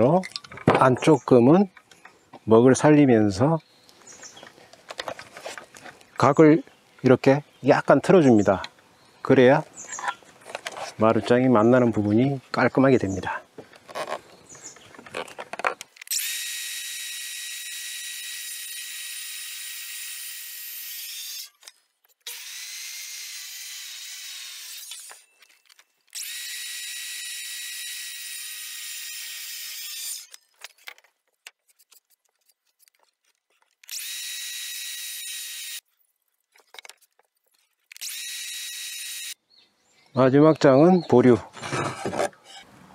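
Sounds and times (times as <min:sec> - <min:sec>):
circular saw cutting wood: 0:16.1 - 0:21.5, 0:22.3 - 0:25.2, 0:26.2 - 0:30.4, 0:33.9 - 0:35.8, 0:37.9 - 0:39.4.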